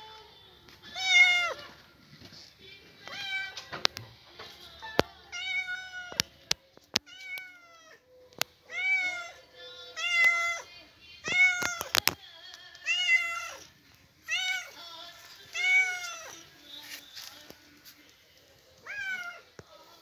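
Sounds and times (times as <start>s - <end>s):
cat meowing: 0.9s - 1.7s, 3.1s - 3.6s, 5.3s - 6.2s, 7.0s - 9.4s, 10.0s - 12.0s, 12.8s - 13.7s, 14.3s - 14.8s, 15.5s - 16.4s, 18.8s - 19.5s.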